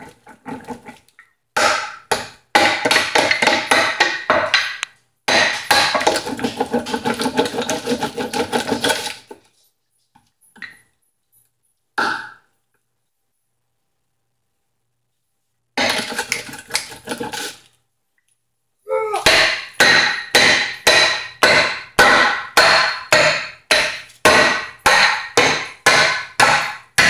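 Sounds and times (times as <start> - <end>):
rolling pin crushing hard candy: 5.5 - 9.4.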